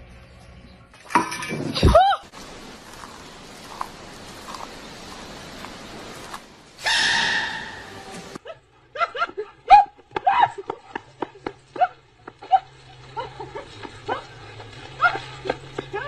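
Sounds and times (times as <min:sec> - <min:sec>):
dog yipping: 0:06.8 - 0:08.0.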